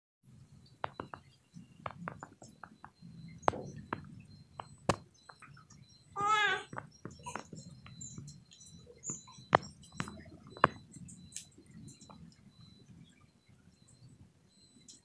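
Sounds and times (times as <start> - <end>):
sharp light clicks and taps: 0.8 - 6.0, 6.7 - 12.7.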